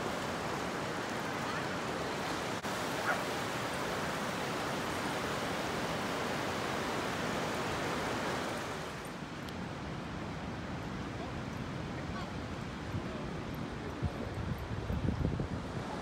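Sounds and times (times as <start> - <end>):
ocean surf breaking: 0.0 - 9.0
dog barking: 3.0 - 3.3.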